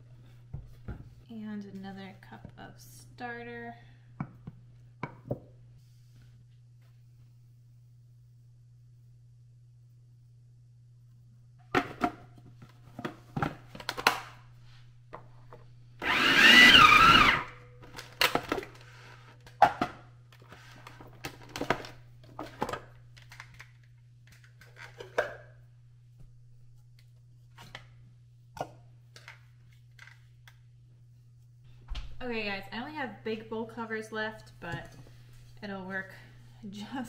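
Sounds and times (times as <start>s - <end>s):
electric mixer running: 16.0s - 17.6s.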